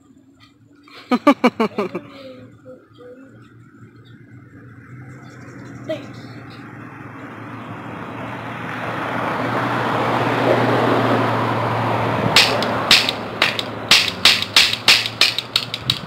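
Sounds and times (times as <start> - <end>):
toy cap pistol snapping clicks: 12.4 - 16.0.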